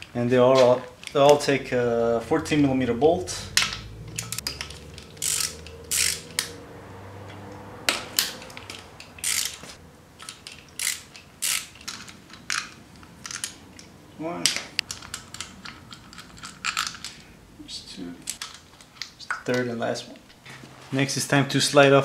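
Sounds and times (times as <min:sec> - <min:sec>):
socket ratchet clicking: 0:03.6 - 0:06.5, 0:08.2 - 0:12.7.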